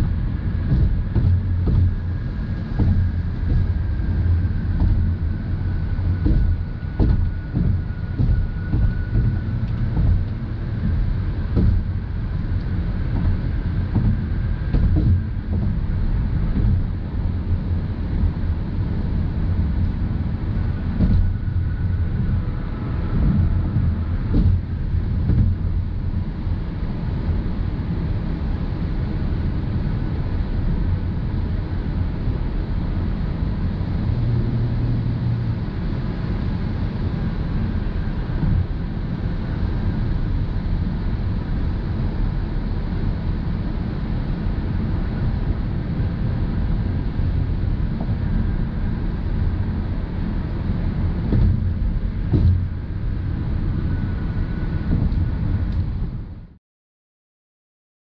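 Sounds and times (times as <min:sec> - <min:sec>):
light thumps: 0:00.0 - 0:17.0, 0:21.0 - 0:25.9, 0:51.3 - 0:52.7
car engine running: 0:00.0 - 0:27.4
road and tyre rumble: 0:00.0 - 0:56.6.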